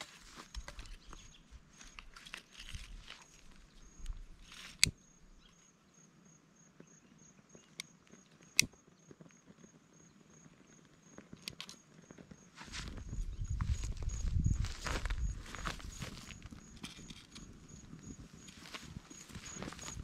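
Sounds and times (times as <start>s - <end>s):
kindling and grass rustling: 0.0s - 4.9s, 12.6s - 20.0s
insect chirping: 0.1s - 20.0s.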